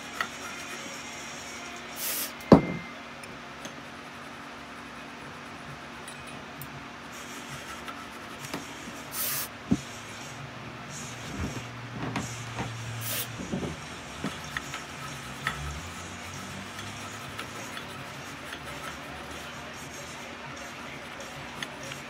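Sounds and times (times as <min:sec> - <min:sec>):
short hissing: 0:02.0 - 0:02.4, 0:09.1 - 0:09.5, 0:13.0 - 0:13.3.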